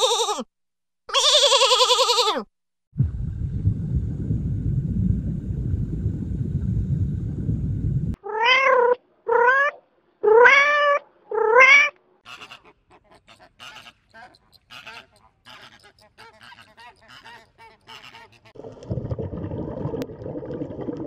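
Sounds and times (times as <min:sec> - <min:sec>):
cat meowing: 0:01.1 - 0:02.4, 0:08.2 - 0:12.0
aquarium water rumble: 0:03.0 - 0:08.2, 0:18.6 - 0:21.0.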